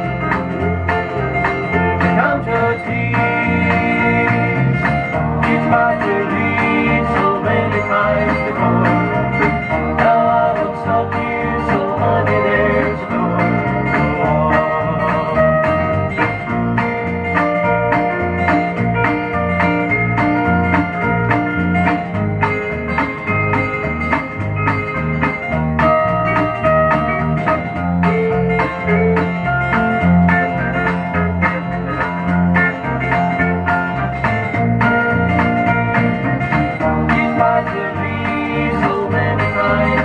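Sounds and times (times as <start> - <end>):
country song instrumental: 0.0 - 40.0.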